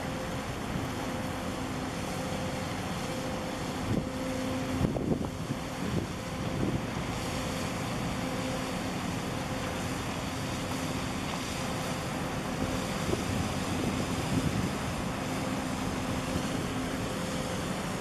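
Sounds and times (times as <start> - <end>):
moving water: 0.0 - 18.0
ship engine hum: 0.0 - 18.0
wind on microphone: 4.7 - 7.0, 12.6 - 15.3.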